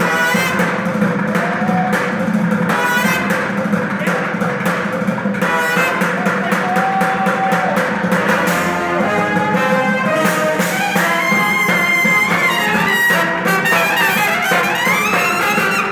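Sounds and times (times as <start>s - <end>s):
trombone: 0.0s - 1.2s, 2.6s - 4.1s, 5.3s - 6.4s, 8.1s - 15.9s
trumpet: 0.0s - 4.2s, 5.3s - 15.9s
fast drum beat: 0.0s - 15.9s.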